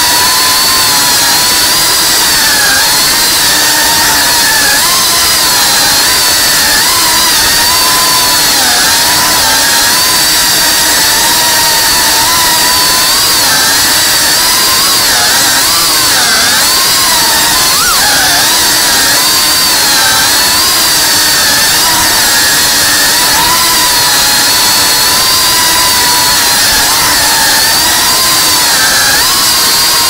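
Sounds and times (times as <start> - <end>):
drone motors whining: 0.0 - 30.0.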